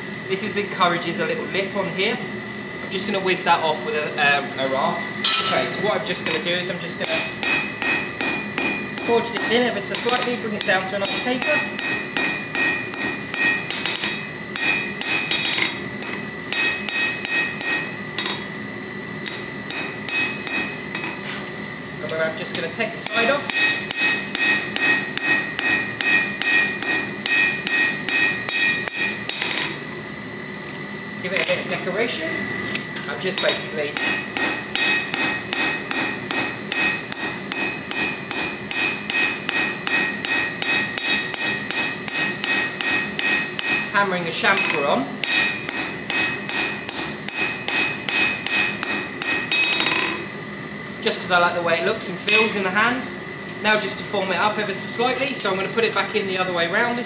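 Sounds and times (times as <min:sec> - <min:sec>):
hammer striking steel on anvil: 0:05.2 - 0:06.4, 0:07.0 - 0:18.6, 0:19.2 - 0:21.2, 0:23.0 - 0:29.8, 0:33.4 - 0:43.9, 0:44.6 - 0:50.3, 0:52.3 - 0:52.6.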